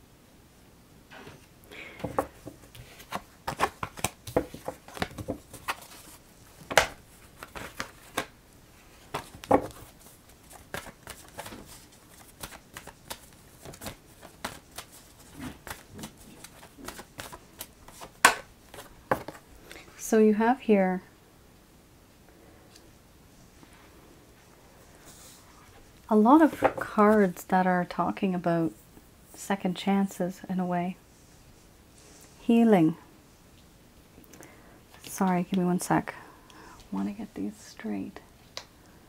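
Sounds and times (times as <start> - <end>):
cards shuffling and snapping: 2.0 - 8.3, 9.1 - 19.4.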